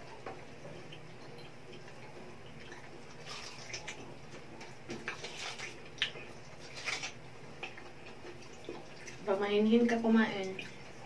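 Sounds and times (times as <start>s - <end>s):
low steady hum: 0.0s - 11.0s
wet chewing and lip-smacking: 1.0s - 9.2s.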